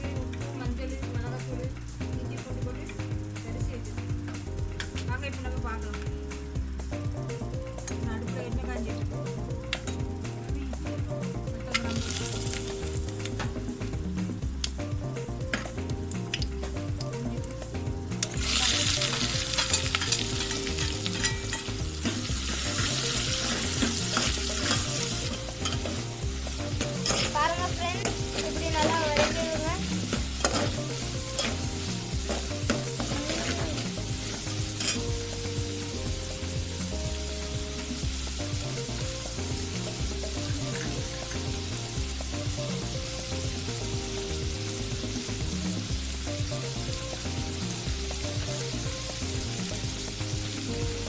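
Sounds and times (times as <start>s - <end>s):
background music: 0.0s - 51.0s
onions sizzling in hot oil: 0.0s - 51.0s
spoon clinking against pot: 20.8s - 21.7s
ladle stirring in pot: 22.4s - 26.0s, 26.7s - 27.4s.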